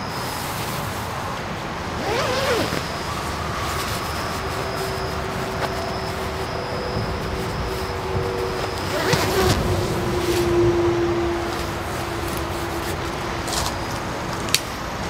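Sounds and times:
steady low hum: 0.9s - 15.0s
sleeping bag rustling: 1.7s - 14.8s
sleeping bag zip: 2.0s - 6.4s, 7.2s - 10.6s.

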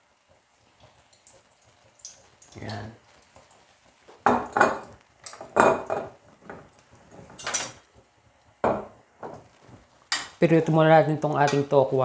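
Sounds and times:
metal cookware clinking and knocking: 4.2s - 6.6s, 7.3s - 7.8s.

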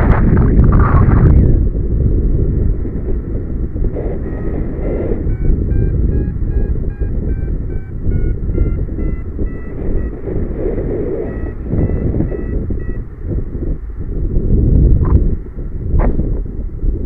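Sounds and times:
wind rumbling on microphone: 0.0s - 17.0s
variometer beeping: 4.0s - 13.3s.

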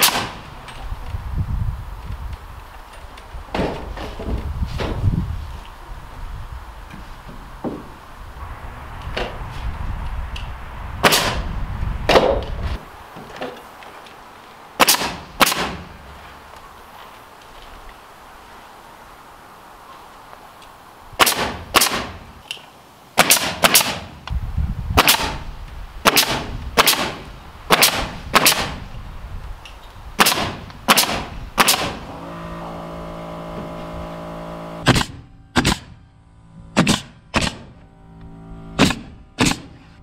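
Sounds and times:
nail gun firing: 0.0s - 0.5s, 11.0s - 11.5s, 14.8s - 15.9s, 21.2s - 22.2s, 23.2s - 24.2s, 25.0s - 25.4s, 26.0s - 28.8s, 30.2s - 32.2s, 34.8s - 36.0s, 36.8s - 37.8s, 38.8s - 39.8s
steady hum: 31.3s - 40.0s.

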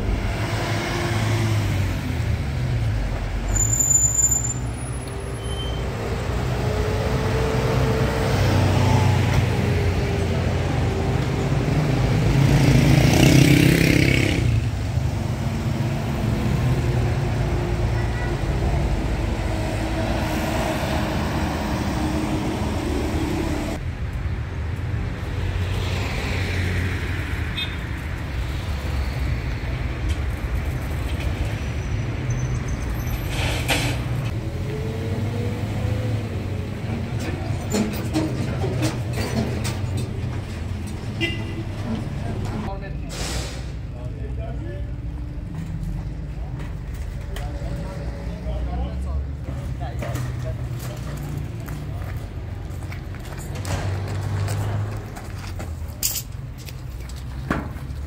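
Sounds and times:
road noise: 0.0s - 58.0s
vehicle engine rumbling: 26.7s - 58.0s.

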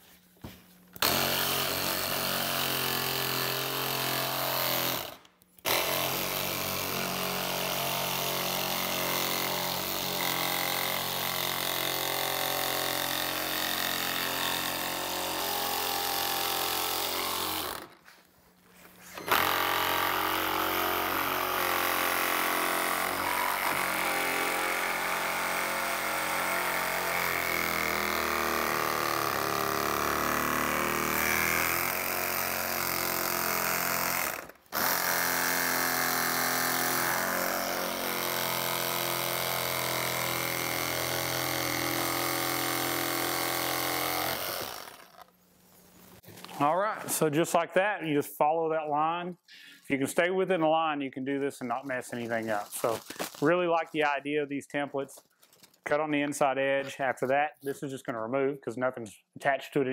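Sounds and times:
reciprocating saw cutting plastic: 1.0s - 18.0s, 19.0s - 45.4s.

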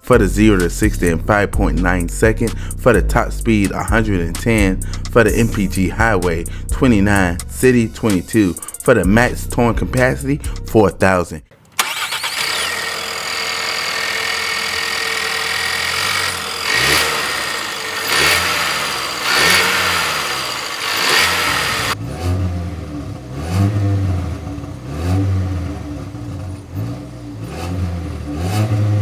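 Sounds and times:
exhaust revving: 0.0s - 8.6s, 11.8s - 29.0s
car engine revving: 11.8s - 29.0s.

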